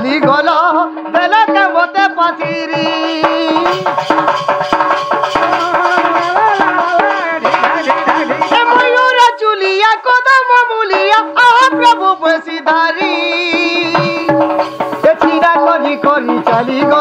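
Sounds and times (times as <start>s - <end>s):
barrel drum beating: 0.0s - 17.0s
wavering sliding melody: 4.1s - 9.7s.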